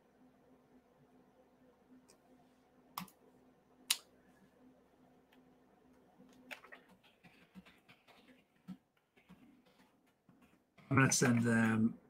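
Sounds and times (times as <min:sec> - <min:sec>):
faint low hum: 0:00.0 - 0:12.0
mouse clicks: 0:03.0 - 0:03.2
keyboard typing: 0:06.3 - 0:11.8.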